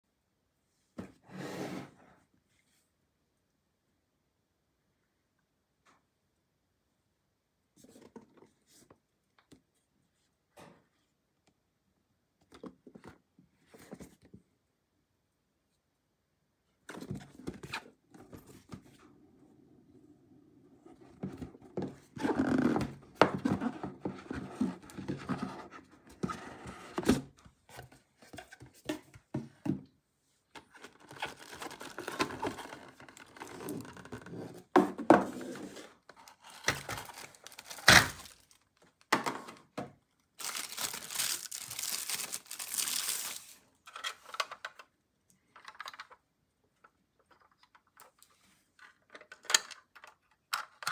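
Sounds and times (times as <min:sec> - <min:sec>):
plastic wrapping crinkling and tearing: 0:36.4 - 0:38.7, 0:40.4 - 0:43.6.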